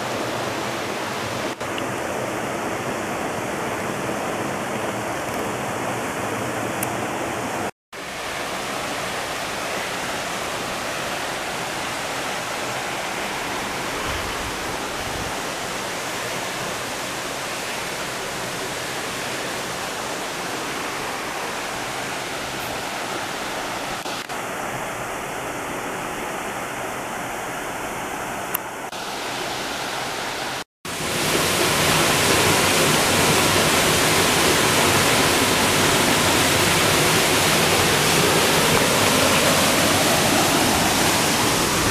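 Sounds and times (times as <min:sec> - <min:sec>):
river water rushing: 0:00.0 - 0:41.9
water pouring over cascade: 0:30.9 - 0:41.9.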